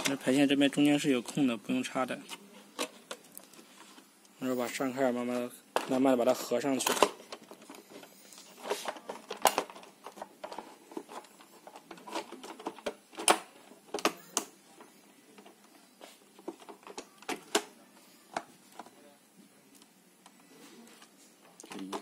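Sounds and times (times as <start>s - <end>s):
plastic clicks and snaps: 9.2s - 14.5s.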